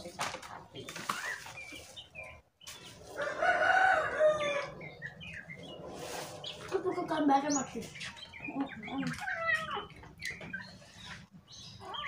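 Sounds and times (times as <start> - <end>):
rooster crowing: 3.2 - 5.0.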